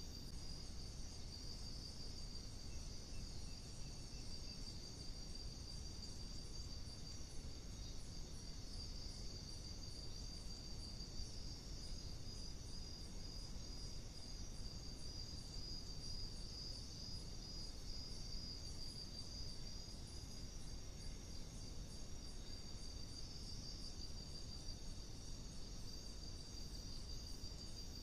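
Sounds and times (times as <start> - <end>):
crickets trilling: 0.0 - 28.0
low background hiss: 0.0 - 28.0
pulsing insect chirp: 0.0 - 28.0.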